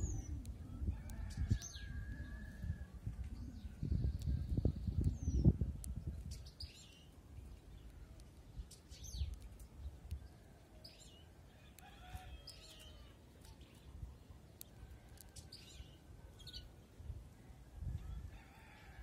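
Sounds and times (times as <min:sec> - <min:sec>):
wind on microphone: 0:00.0 - 0:06.9, 0:17.0 - 0:19.0
distant rooster crowing: 0:00.6 - 0:03.0, 0:11.6 - 0:13.2, 0:17.8 - 0:19.0.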